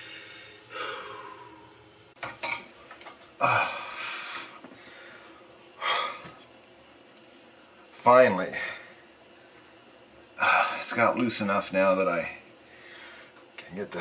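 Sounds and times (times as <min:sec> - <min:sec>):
man breathing heavily: 0:00.0 - 0:01.8, 0:03.4 - 0:06.4, 0:12.7 - 0:13.4.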